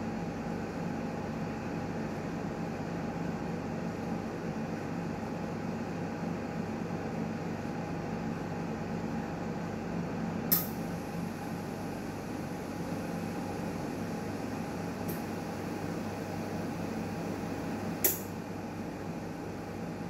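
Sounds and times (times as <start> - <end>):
sharp click: 10.5 - 10.8, 18.0 - 18.3.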